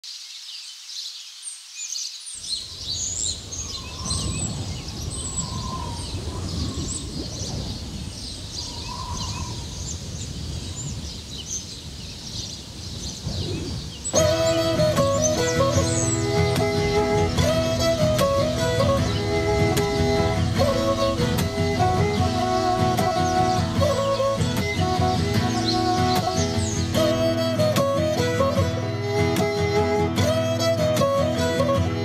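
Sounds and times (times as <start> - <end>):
birds chirping and calling: 1.8 - 28.5
plucked string music: 14.1 - 32.0.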